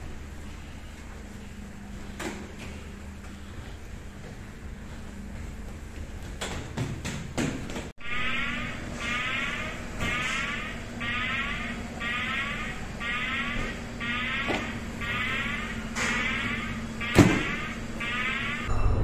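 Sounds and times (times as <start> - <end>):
steady low hum: 0.0 - 19.0
warbling electronic alarm: 8.0 - 19.0.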